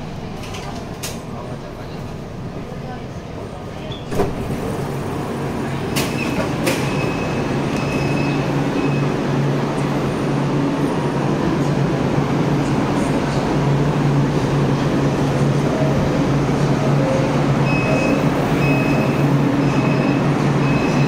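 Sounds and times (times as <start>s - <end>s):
train doors clunking: 0.0s - 1.6s, 3.8s - 10.0s
train low hum: 0.0s - 21.0s.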